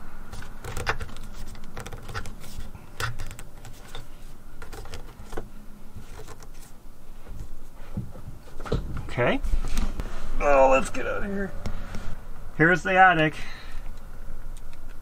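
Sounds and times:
cable clicking and scraping in metal box: 0:00.3 - 0:06.7.

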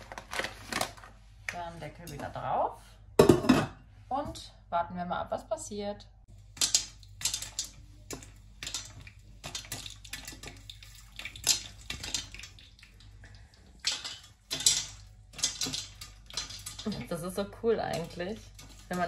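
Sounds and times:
oil sizzling: 0:06.3 - 0:19.0
popcorn popping: 0:06.3 - 0:19.0.

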